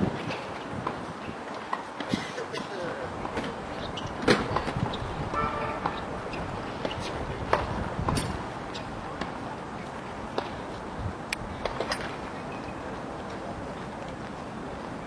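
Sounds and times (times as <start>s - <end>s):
short horn toot: 5.3s - 6.0s.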